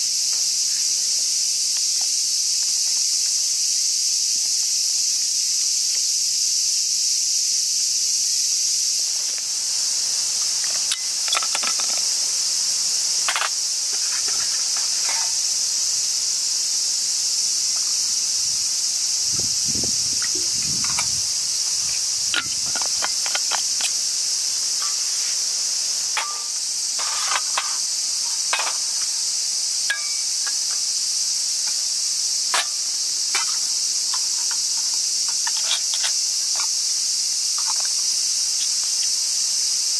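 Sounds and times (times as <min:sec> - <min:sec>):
insects chorus: 0:00.0 - 0:39.9
metal pots clinking: 0:26.1 - 0:27.6, 0:29.9 - 0:30.2.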